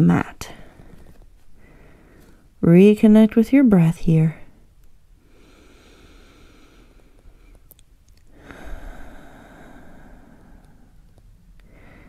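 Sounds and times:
person breathing slowly: 0.5 - 2.6, 5.2 - 7.7, 8.3 - 12.0.

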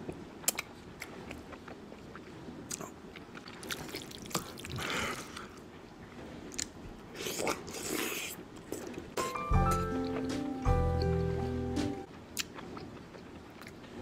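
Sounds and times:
person chewing with wet smacks: 0.0 - 5.7, 12.3 - 14.0
music: 9.2 - 12.1.

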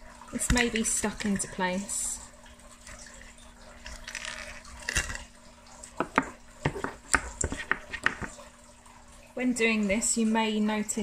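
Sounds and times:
plastic parts scraping: 3.8 - 5.3.

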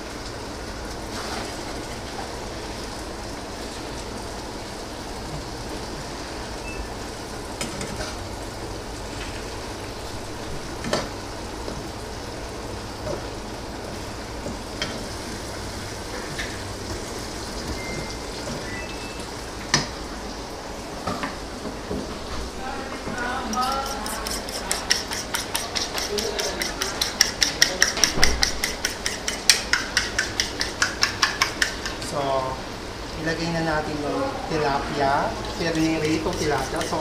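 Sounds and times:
fish frying in pan: 0.0 - 33.9, 34.5 - 37.0
spatula tapping pan: 23.5 - 32.1, 35.7 - 37.0.

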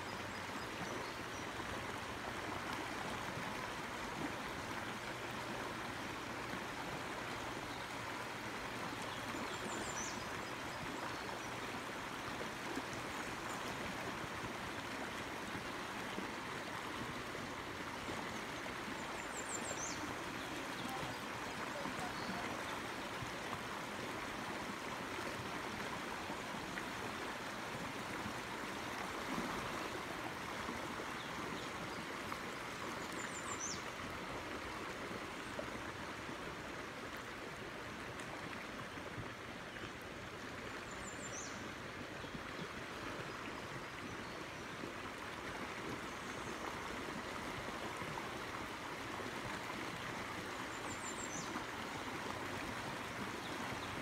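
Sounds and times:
stream water over rocks: 0.0 - 54.0.

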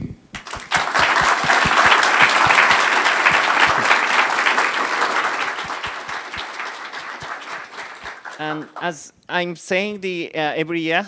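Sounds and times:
audience applauding: 0.4 - 9.0.

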